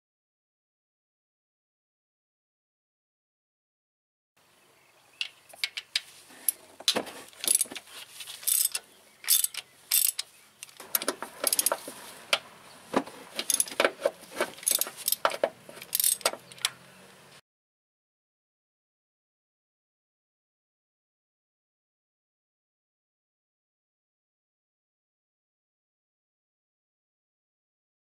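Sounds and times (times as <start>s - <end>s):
ratchet wrench clicking: 7.4s - 7.8s, 8.4s - 11.8s, 13.4s - 13.8s, 14.6s - 16.7s.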